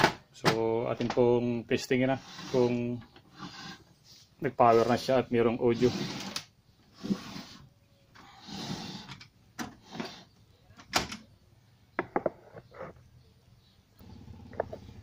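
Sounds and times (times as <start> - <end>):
rustling scrape: 2.1 - 7.7.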